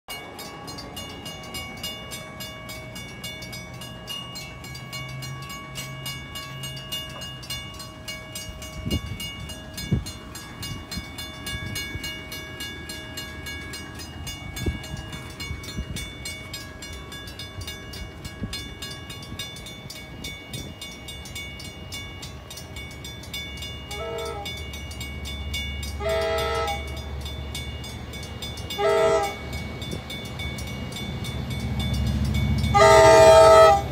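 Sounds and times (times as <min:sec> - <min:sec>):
crossing warning bell ringing: 0:00.1 - 0:33.9
locomotive engine rumble: 0:00.1 - 0:33.9
train horn blasts: 0:23.9 - 0:24.6, 0:25.9 - 0:27.0, 0:28.7 - 0:29.5, 0:32.7 - 0:33.9.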